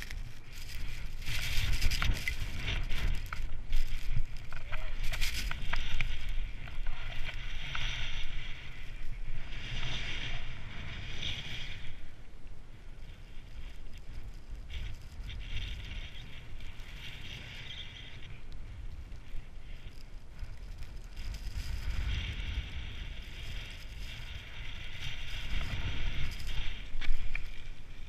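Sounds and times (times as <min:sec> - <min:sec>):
skis hissing through snow: 0:00.0 - 0:12.0, 0:19.0 - 0:28.0
wind rumble on microphone: 0:00.0 - 0:28.0.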